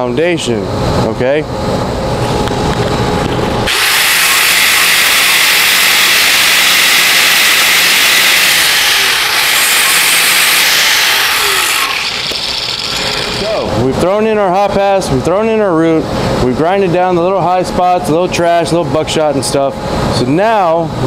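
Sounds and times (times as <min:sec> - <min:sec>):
angle grinder grinding metal: 0:03.7 - 0:13.7.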